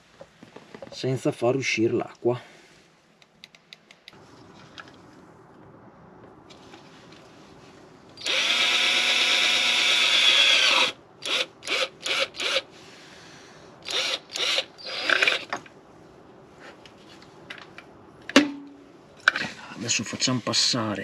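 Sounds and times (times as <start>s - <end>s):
electric drill boring plastic: 8.2s - 12.6s, 13.8s - 15.5s.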